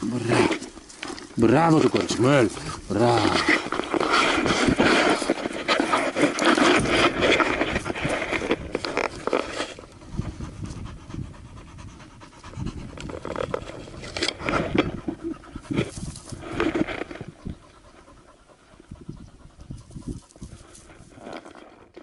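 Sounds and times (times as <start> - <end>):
dog panting: 9.7 - 21.2.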